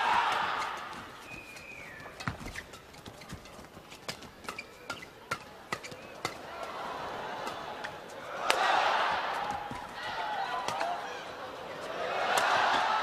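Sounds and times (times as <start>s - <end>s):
footsteps on court: 0.0s - 5.1s, 7.4s - 11.0s
crowd noise: 0.0s - 13.0s
shoe squeak: 0.2s - 6.4s
racket hitting shuttlecock: 4.0s - 11.2s, 11.8s - 13.0s.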